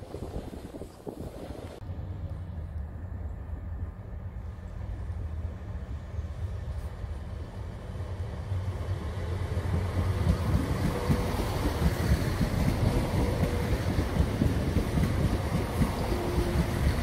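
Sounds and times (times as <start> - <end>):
train wheels rumbling on rails: 0.0 - 17.0
diesel train engines: 1.6 - 17.0.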